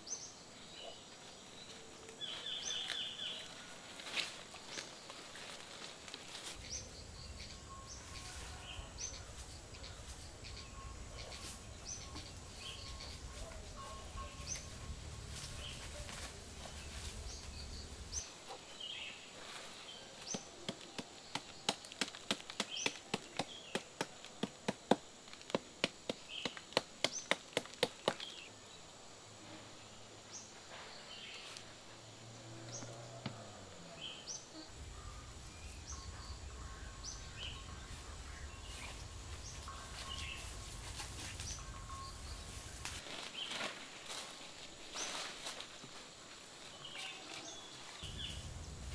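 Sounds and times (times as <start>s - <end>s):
insect drone: 6.3s - 18.4s, 28.5s - 43.1s, 48.0s - 48.9s
bird chirping: 6.5s - 19.3s, 32.5s - 43.5s, 46.7s - 48.9s.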